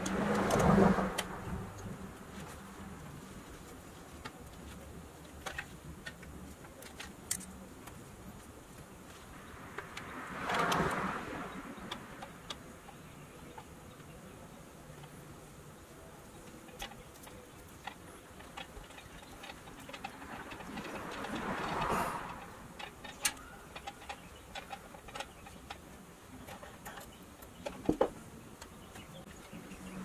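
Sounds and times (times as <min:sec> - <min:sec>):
rustle: 0:00.0 - 0:30.0.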